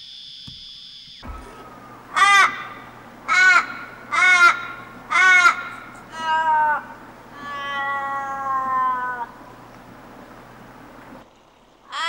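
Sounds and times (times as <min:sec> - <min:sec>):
bird calling harshly: 0:01.2 - 0:09.4.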